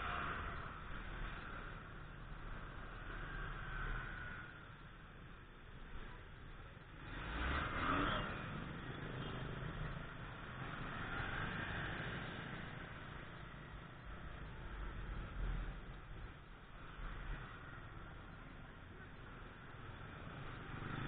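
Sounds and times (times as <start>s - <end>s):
street traffic noise: 0.0s - 21.0s.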